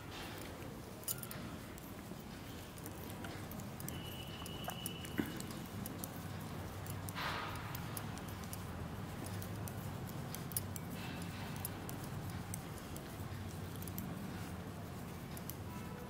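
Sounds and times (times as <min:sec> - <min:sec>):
metal knitting needles clicking: 0:00.3 - 0:16.0
rustle of yarn and hands: 0:07.9 - 0:16.0.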